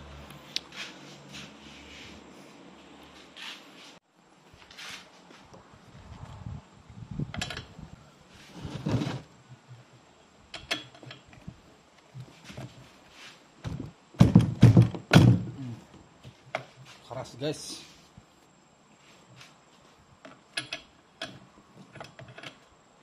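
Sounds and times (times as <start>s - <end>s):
loud thunks: 13.6s - 15.6s.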